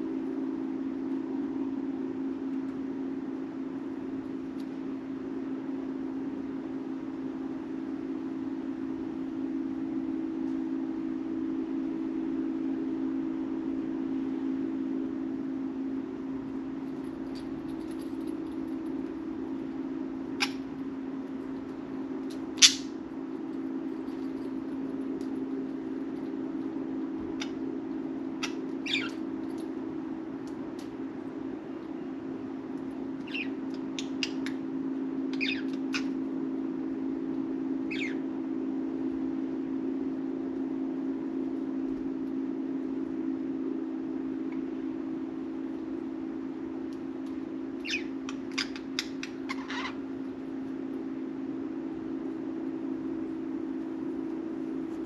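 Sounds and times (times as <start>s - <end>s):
steady low hum: 0.0s - 55.0s
budgerigars chirping: 28.4s - 29.2s, 35.4s - 35.7s, 37.9s - 38.2s.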